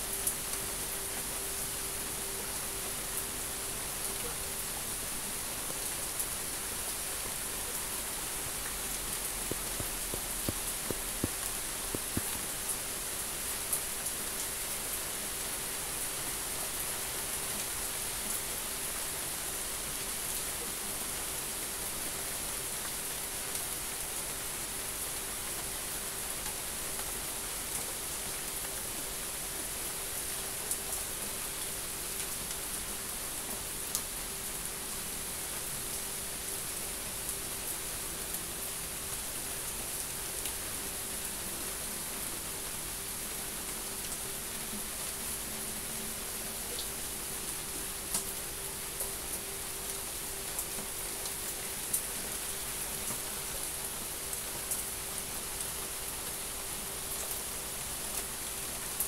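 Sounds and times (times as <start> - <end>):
steady rain hiss: 0.0 - 59.0
raindrop ticks: 9.4 - 12.7.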